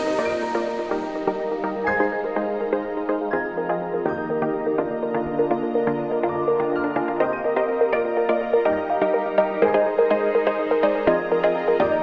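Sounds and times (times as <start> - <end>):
gentle instrumental melody: 0.0 - 12.0.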